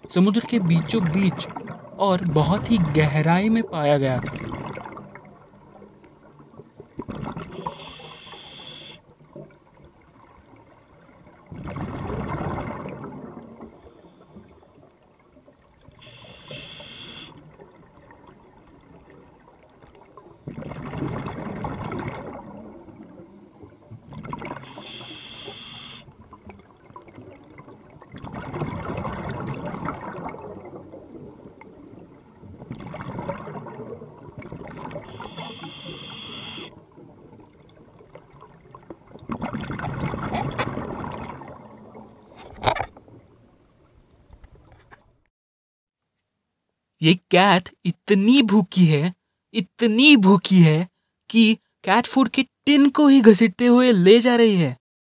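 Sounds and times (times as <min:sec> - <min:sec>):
exhaled bubbles rushing: 0:00.3 - 0:05.5, 0:11.3 - 0:13.8, 0:20.4 - 0:23.1, 0:27.2 - 0:31.9, 0:32.5 - 0:35.3, 0:36.8 - 0:42.2
regulator hissing inhales: 0:07.6 - 0:08.9, 0:24.7 - 0:26.0.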